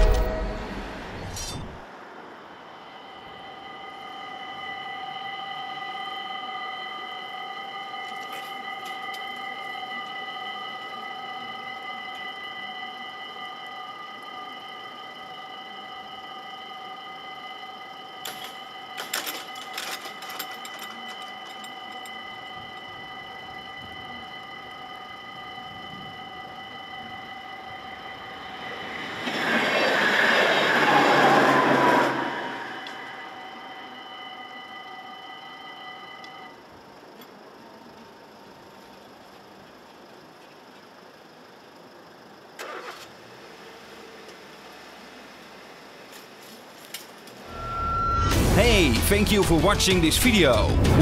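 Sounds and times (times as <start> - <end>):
level crossing bells ringing: 3.2 - 29.2.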